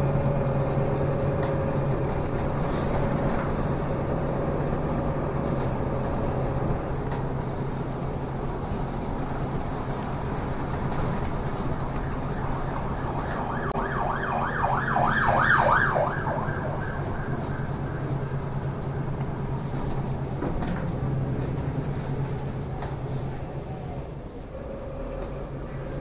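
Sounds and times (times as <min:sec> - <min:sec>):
bus engine hum: 0:00.0 - 0:26.0
siren yelping: 0:11.7 - 0:18.1.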